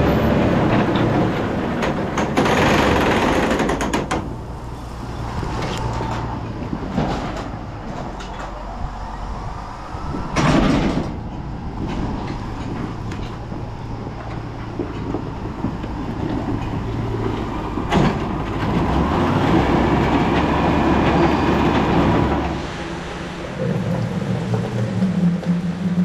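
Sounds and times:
farm machinery engine hum: 0.0 - 26.0
rattling and clanking: 0.2 - 9.2, 10.1 - 22.7
loud clatter: 0.3 - 8.6.

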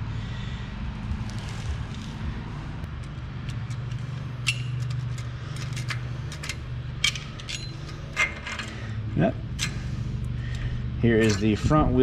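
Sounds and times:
steel pick clinking on metal parts: 3.0 - 9.9, 10.5 - 11.9.

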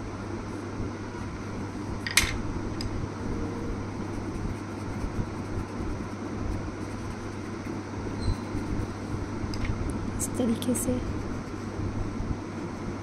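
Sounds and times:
fan-like room hum: 0.0 - 13.0.

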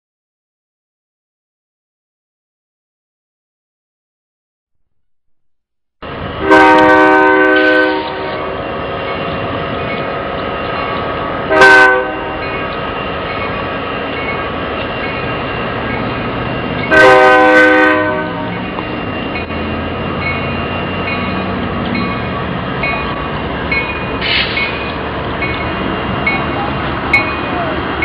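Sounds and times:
passing train rumble: 6.0 - 28.0
locomotive air horn blasts: 6.4 - 8.6, 11.5 - 12.4, 16.9 - 18.6.

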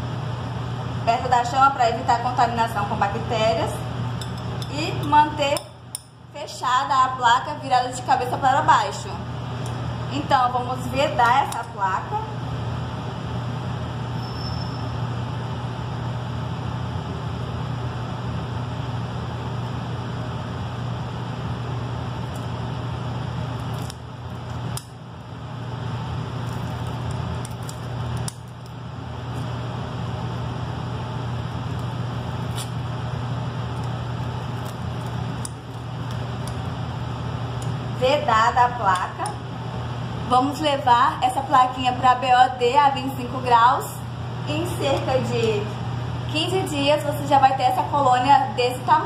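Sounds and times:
blower hum and rushing air: 0.0 - 49.0
film crinkles and clicks: 23.5 - 25.0, 26.3 - 30.5, 31.3 - 36.9.

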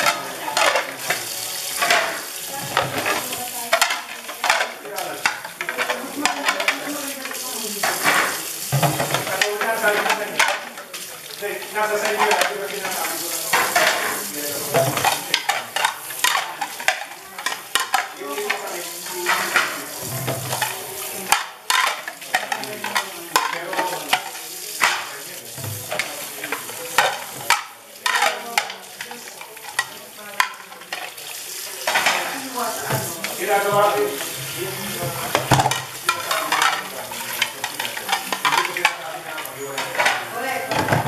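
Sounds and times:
plates clinking and knocking: 0.0 - 41.0
tap water running into sink: 0.0 - 41.0.

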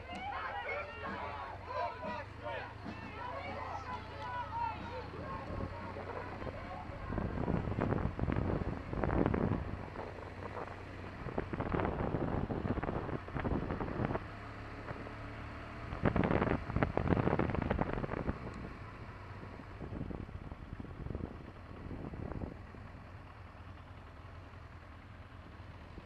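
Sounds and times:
motorcycle engine running: 0.0 - 26.0
wind buffeting microphone: 4.7 - 15.1, 15.8 - 22.7.

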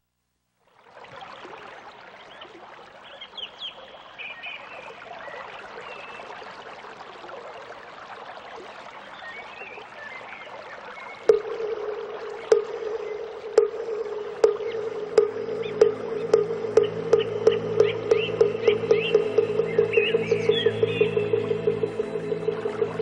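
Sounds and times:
running water: 0.7 - 23.0
birds chirping: 2.2 - 6.4, 9.0 - 23.0
steady mid-pitched tone: 11.3 - 23.0.

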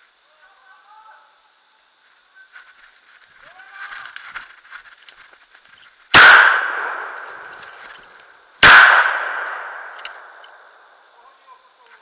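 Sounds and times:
gunshots echoing: 6.1 - 7.8, 8.6 - 10.8.

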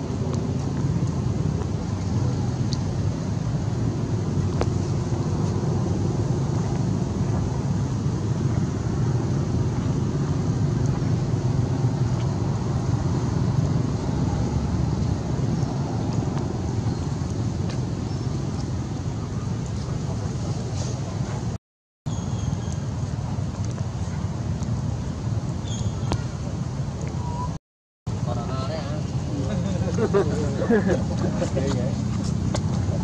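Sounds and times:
low outdoor rumble: 0.0 - 21.6.

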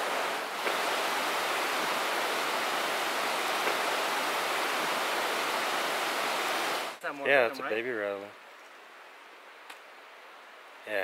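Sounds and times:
rushing water: 0.0 - 8.2.

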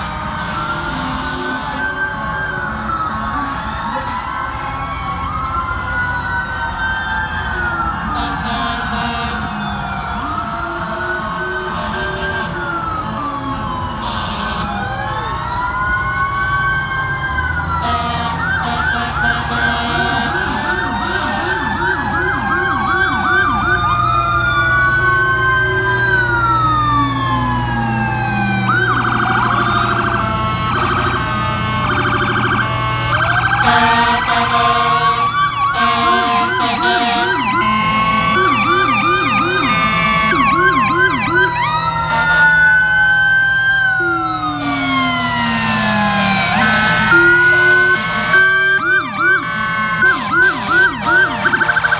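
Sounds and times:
fire truck sirens: 0.0 - 51.9
truck engines rumbling: 0.0 - 51.9
horn blasts: 32.7 - 41.5, 45.7 - 51.9.

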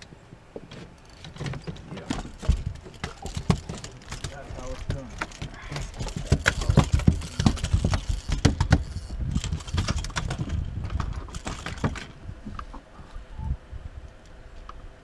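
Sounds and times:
rapid clicks and knocks: 1.2 - 12.1.

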